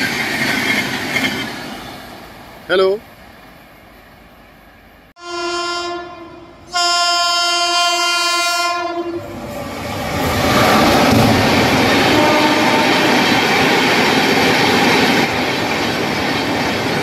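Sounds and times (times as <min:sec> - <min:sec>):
train passing at speed: 0:00.0 - 0:17.0
train horn blasts: 0:05.2 - 0:09.4, 0:12.0 - 0:13.3.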